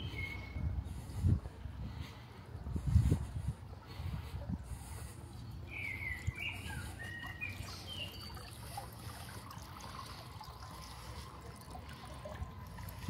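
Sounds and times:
bird chirps: 0:05.3 - 0:08.8
water trickling from fountain: 0:05.5 - 0:13.0.

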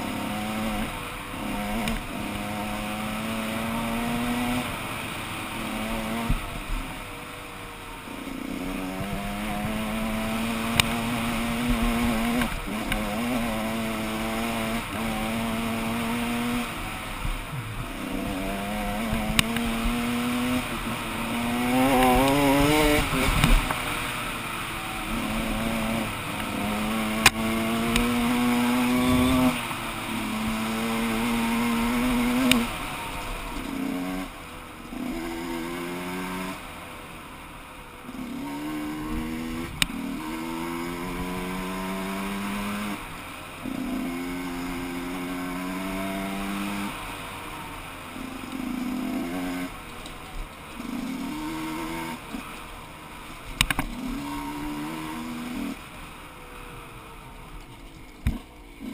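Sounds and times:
two-stroke motorcycle engine revving: 0:00.0 - 0:58.9.

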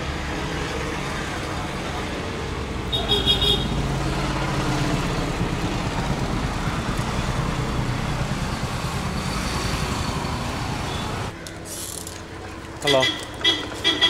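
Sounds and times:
passing vehicle engines: 0:00.0 - 0:14.0
steady road noise: 0:00.0 - 0:14.0.

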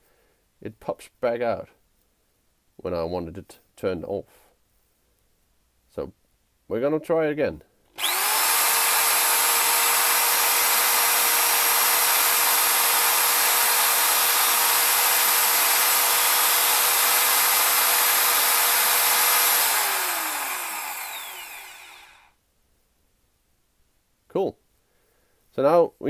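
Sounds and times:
hammer drill running: 0:07.9 - 0:22.3
motor winding down whine: 0:08.0 - 0:22.3.

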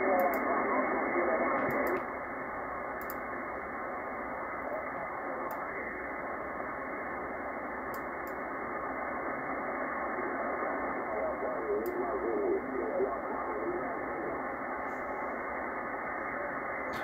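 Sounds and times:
radio static hiss: 0:00.0 - 0:17.0
faint mouse clicks: 0:03.0 - 0:03.2.

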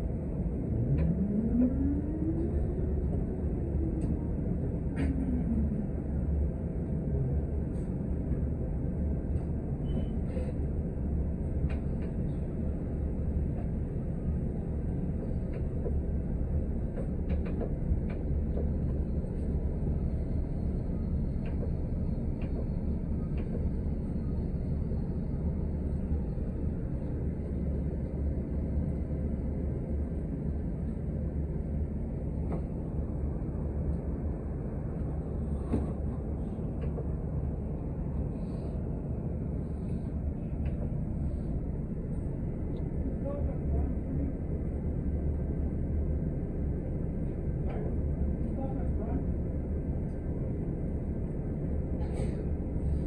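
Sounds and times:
bus drivetrain rumble: 0:00.0 - 0:53.0
rising whine: 0:00.5 - 0:06.5.

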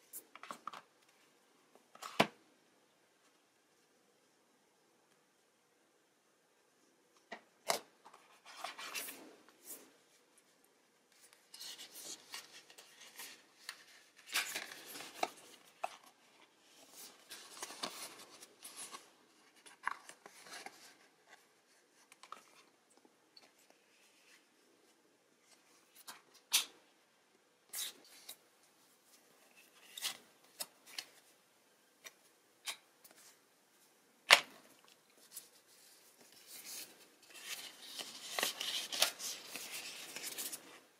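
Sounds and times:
paper rustling and sliding: 0:08.1 - 0:09.9, 0:11.2 - 0:22.5, 0:35.2 - 0:40.9.

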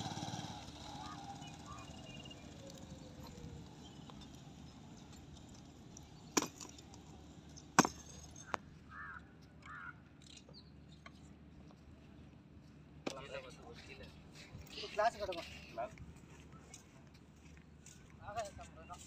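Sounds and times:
motorcycle engine slowing: 0:00.0 - 0:08.6.

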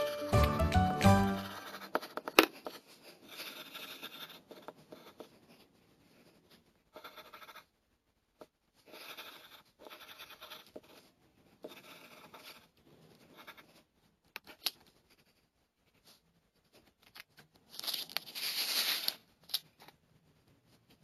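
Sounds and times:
marker tapping and rubbing on paper: 0:00.0 - 0:05.6, 0:11.6 - 0:12.6
pencil scratching on paper: 0:01.2 - 0:17.0
rustling scrape: 0:17.6 - 0:19.3.

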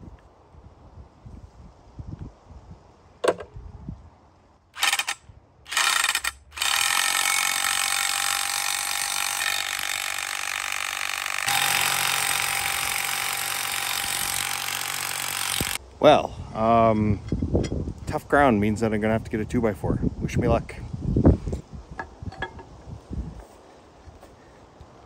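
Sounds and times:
impact driver hammering: 0:06.9 - 0:15.8.

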